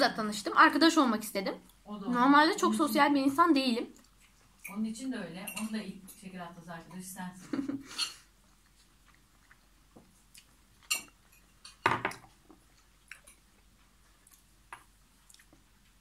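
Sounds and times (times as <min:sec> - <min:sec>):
person chewing food: 0:03.9 - 0:04.7, 0:07.9 - 0:16.0.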